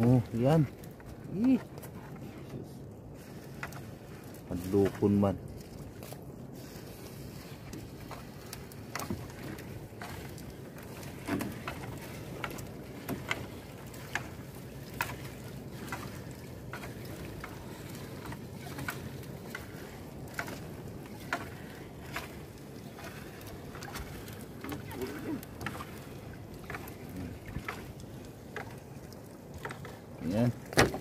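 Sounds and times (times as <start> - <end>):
water washing: 3.2 - 31.0
knocks against boat: 30.6 - 31.0.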